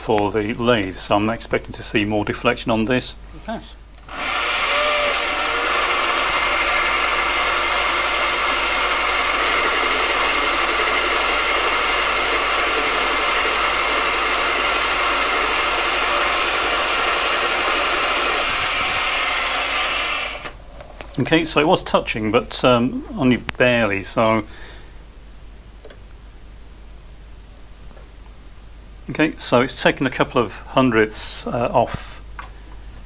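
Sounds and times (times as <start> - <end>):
lathe whine: 4.0 - 20.6.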